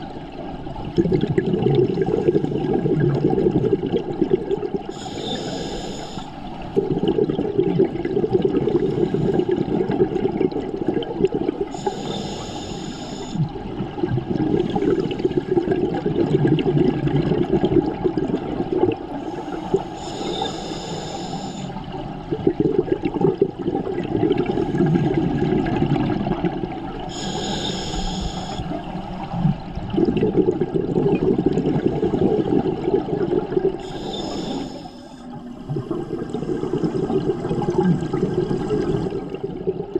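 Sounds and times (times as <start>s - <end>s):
bubbling exhale underwater: 0.0s - 5.8s, 6.6s - 39.9s
hissing regulator inhale: 4.9s - 6.6s, 8.6s - 9.7s, 11.7s - 13.5s, 19.2s - 21.8s, 27.1s - 28.9s, 33.8s - 36.9s.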